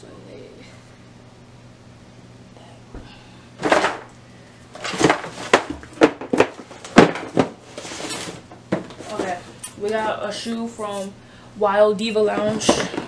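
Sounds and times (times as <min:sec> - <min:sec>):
shoes and boxes knocking: 0:04.8 - 0:07.6
cardboard boxes rustling: 0:04.8 - 0:10.2, 0:12.3 - 0:13.0.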